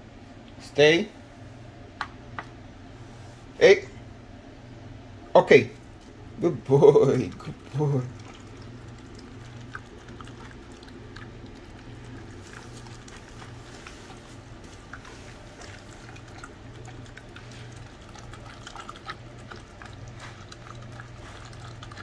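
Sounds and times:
steady low hum: 0:00.0 - 0:22.0
dog chewing wet food: 0:06.8 - 0:22.0.

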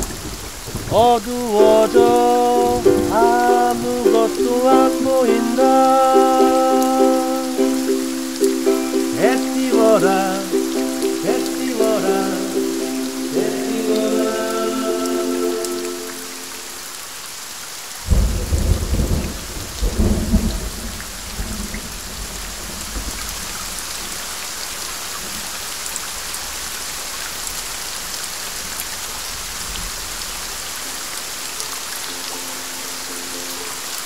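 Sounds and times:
steady rain hiss: 0:00.0 - 0:34.0
thunder clap and rumble: 0:18.1 - 0:23.3.

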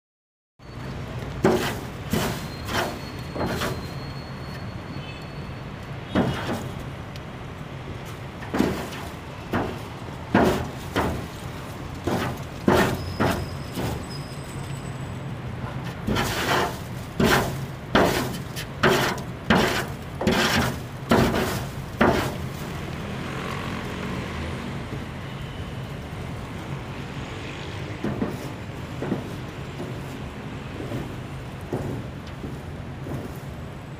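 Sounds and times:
broom scraping dry leaves on concrete: 0:01.4 - 0:04.0, 0:06.2 - 0:06.8, 0:08.0 - 0:14.7, 0:15.6 - 0:23.8, 0:27.9 - 0:33.6.

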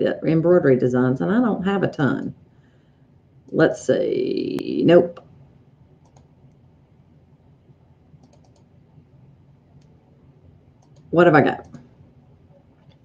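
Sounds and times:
computer mouse clicks: 0:06.0 - 0:06.6, 0:08.2 - 0:08.7, 0:10.8 - 0:11.9.

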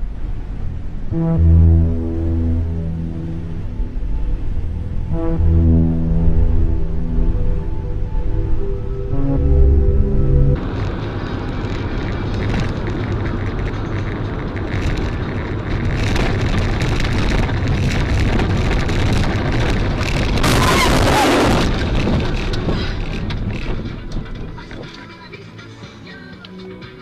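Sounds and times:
heavy vehicle and road noise: 0:00.0 - 0:27.0
loud harsh burst of noise: 0:16.0 - 0:22.4.

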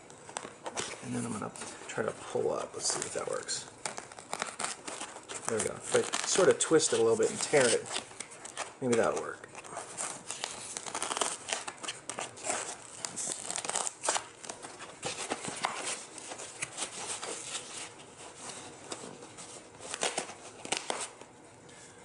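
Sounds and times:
foam crackling and tearing: 0:02.8 - 0:09.3, 0:09.9 - 0:18.0.

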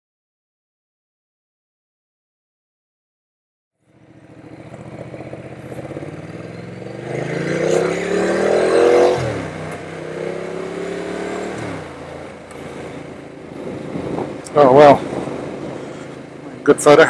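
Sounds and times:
motorcycle engine accelerating: 0:03.8 - 0:17.0
wind noise: 0:07.8 - 0:17.0.

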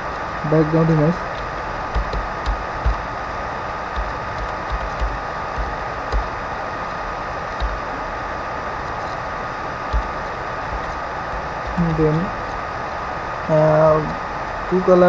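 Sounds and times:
recording hiss: 0:00.0 - 0:15.0
keyboard keystrokes: 0:01.3 - 0:03.1, 0:03.9 - 0:06.4, 0:07.6 - 0:07.9, 0:09.9 - 0:11.0.

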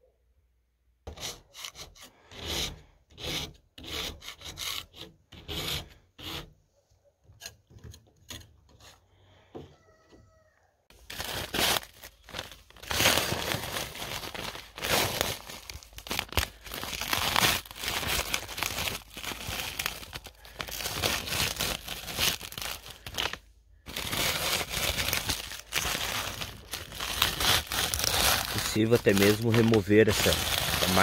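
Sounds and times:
ice scraper scraping frost: 0:14.8 - 0:15.5, 0:25.8 - 0:31.0.

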